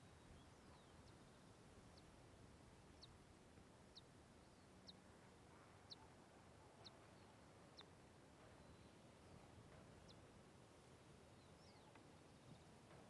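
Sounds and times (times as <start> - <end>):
low background hiss: 0.0 - 13.0
bird chirping: 11.3 - 12.7.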